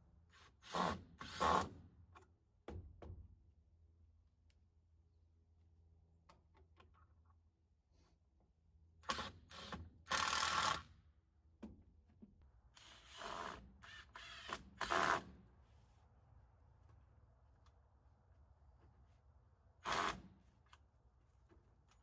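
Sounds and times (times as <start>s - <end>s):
cordless drill driving screws: 9.1s - 10.8s, 12.8s - 15.3s, 19.8s - 20.3s.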